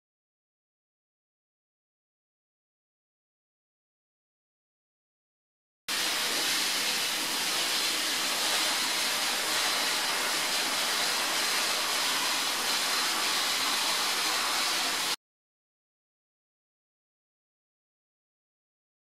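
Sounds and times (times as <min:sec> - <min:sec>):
blast nozzle hissing: 0:05.9 - 0:15.2.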